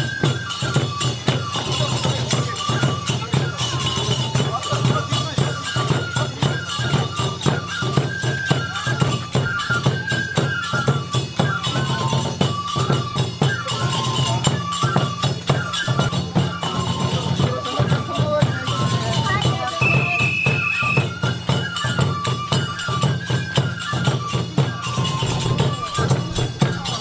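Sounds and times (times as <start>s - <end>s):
hand cymbals: 0.0s - 27.0s
transverse flute melody: 0.0s - 27.0s
drum strokes: 23.9s - 27.0s.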